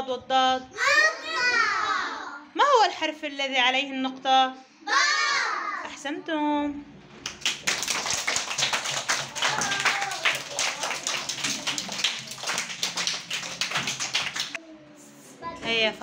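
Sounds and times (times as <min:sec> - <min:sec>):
children's voices: 0:00.8 - 0:02.5, 0:04.8 - 0:05.9, 0:09.2 - 0:12.4
children clapping: 0:07.2 - 0:14.6.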